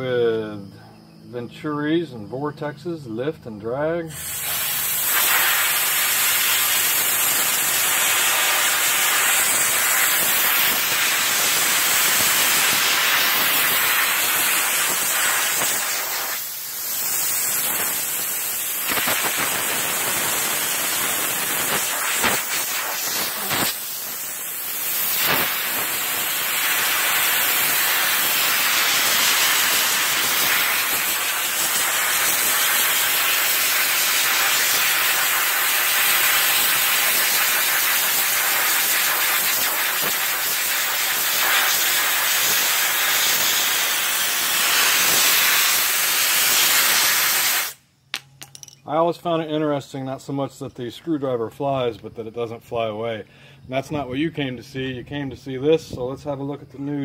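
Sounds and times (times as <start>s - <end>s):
pressurised jet hissing from hose: 4.1s - 47.8s.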